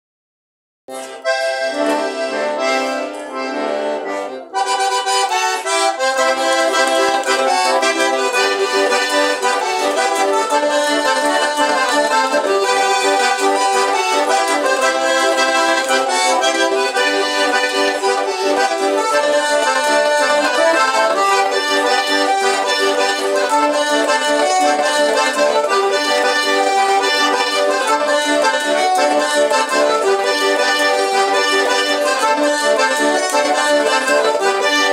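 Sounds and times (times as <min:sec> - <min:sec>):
button accordions playing: 0:00.9 - 0:34.9.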